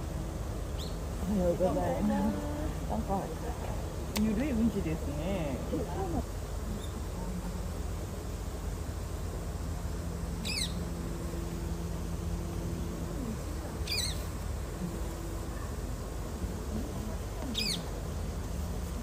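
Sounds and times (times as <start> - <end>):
low background hum: 0.0 - 19.0
bird calling: 10.4 - 10.9, 12.9 - 15.8, 16.8 - 17.9.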